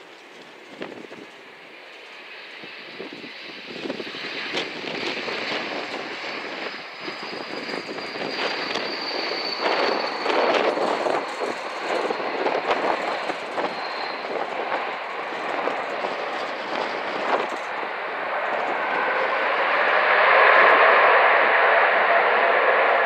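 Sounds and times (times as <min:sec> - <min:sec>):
airliner jet roar: 0:00.0 - 0:23.0
high whine falling in pitch: 0:05.0 - 0:23.0.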